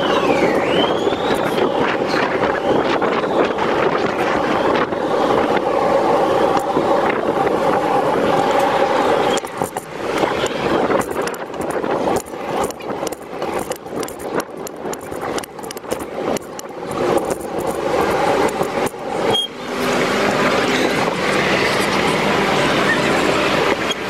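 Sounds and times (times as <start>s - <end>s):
traffic motor hum: 0.0s - 24.0s
bicycle rattling clicks: 9.3s - 19.5s.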